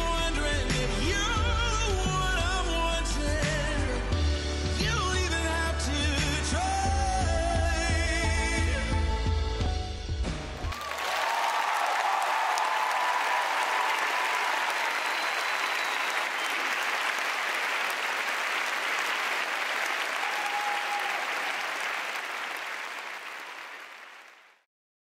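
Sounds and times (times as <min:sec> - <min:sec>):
large audience applauding: 0:10.6 - 0:24.6.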